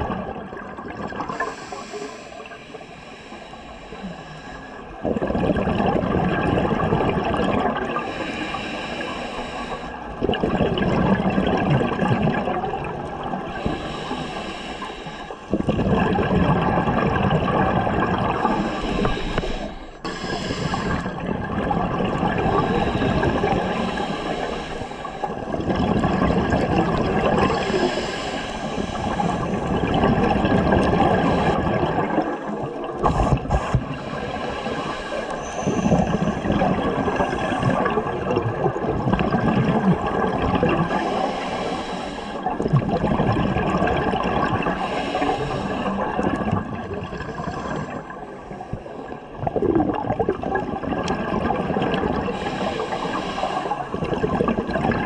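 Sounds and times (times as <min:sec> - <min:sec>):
bubbles gurgling: 0:00.0 - 0:02.0, 0:04.9 - 0:08.1, 0:10.1 - 0:13.9, 0:15.5 - 0:41.4, 0:42.4 - 0:48.4, 0:49.3 - 0:55.0
diver breathing through regulator: 0:01.2 - 0:04.9, 0:08.0 - 0:10.0, 0:13.5 - 0:15.7, 0:18.3 - 0:21.3, 0:22.4 - 0:25.6, 0:27.4 - 0:32.2, 0:33.0 - 0:38.0, 0:40.8 - 0:42.7, 0:44.6 - 0:46.3, 0:47.0 - 0:49.4, 0:52.2 - 0:54.1.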